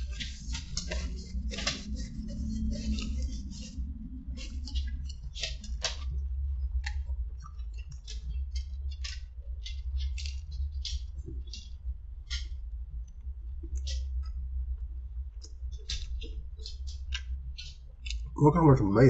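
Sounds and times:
paper wrapper crinkling: 0.0s - 3.8s
steady low hum: 0.0s - 19.0s.

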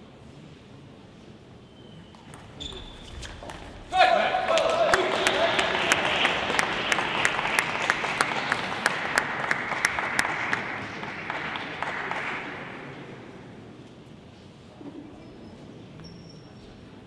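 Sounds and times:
crowd applauding: 4.0s - 13.4s.

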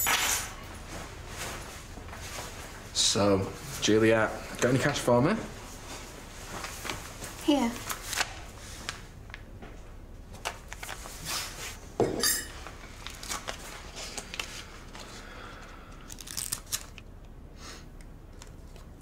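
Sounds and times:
paper rustling: 6.4s - 9.1s, 10.4s - 11.8s, 13.0s - 15.1s.

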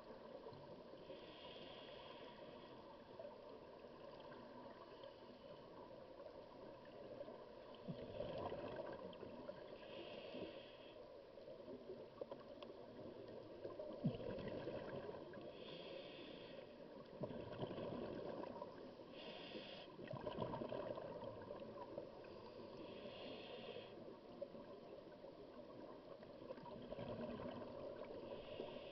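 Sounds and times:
exhaled bubbles gushing: 14.0s - 15.2s, 17.2s - 18.7s, 20.0s - 21.8s
regulator inhalation hiss: 15.6s - 16.7s, 19.2s - 20.0s, 22.8s - 24.0s.

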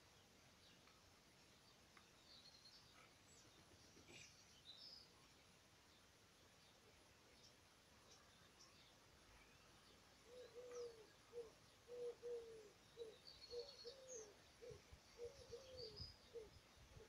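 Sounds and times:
faint high chirps of small birds: 0.0s - 17.0s
dove cooing: 10.2s - 17.0s.

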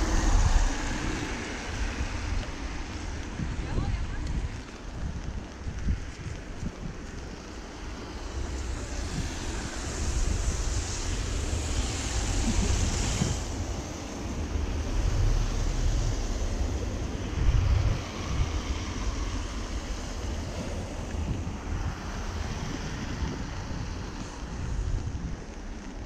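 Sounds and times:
wind rumbling on microphone: 0.0s - 26.0s
steady hiss: 7.4s - 20.7s.

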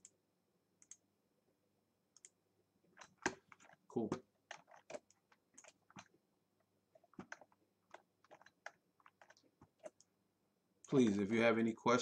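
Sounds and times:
mouse and keyboard clicks: 2.2s - 2.4s, 4.4s - 6.1s, 7.0s - 10.1s.

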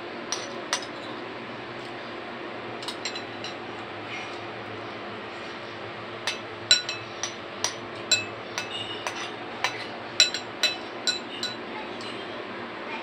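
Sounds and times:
metal spoon clinking against bowl: 0.3s - 1.2s, 2.8s - 3.6s, 6.3s - 12.2s.

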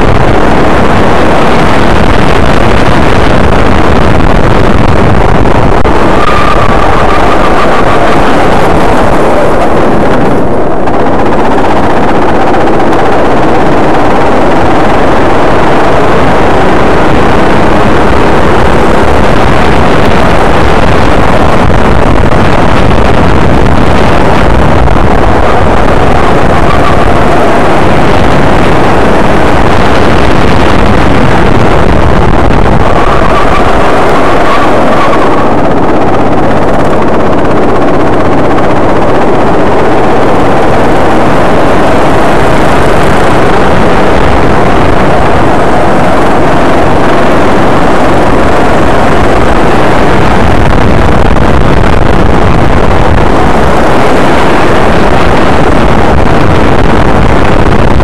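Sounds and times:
wind buffeting: 0.0s - 58.0s
go-kart engine running hard: 5.4s - 50.2s.

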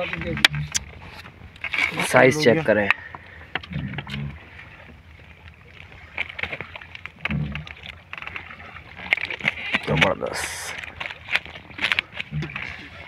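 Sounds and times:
water slapping a boat hull: 0.0s - 13.0s.

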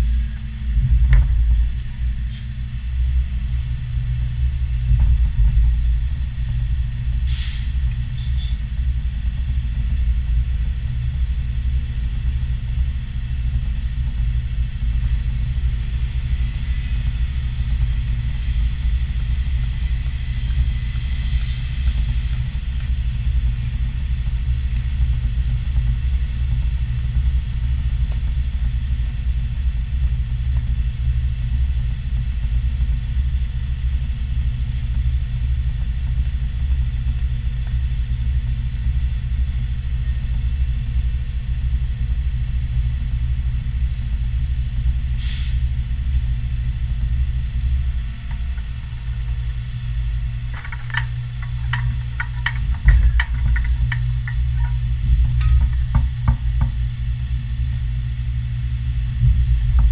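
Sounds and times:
pump truck engine rumbling: 46.6s - 57.8s.

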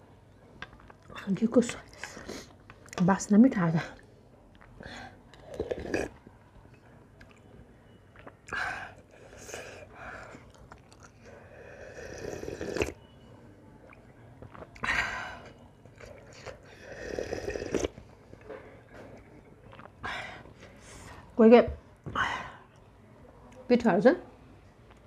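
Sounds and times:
chewing: 4.4s - 13.0s, 13.8s - 20.0s
slurping hot soup: 5.3s - 6.2s, 8.4s - 13.0s, 14.5s - 18.0s.

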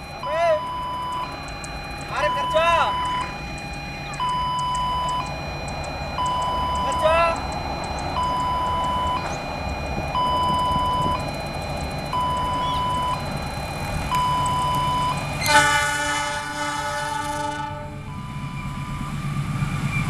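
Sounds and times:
train rumble: 0.0s - 20.0s
two-tone warning alarm: 0.0s - 20.0s
locomotive horn blast: 15.4s - 18.2s.

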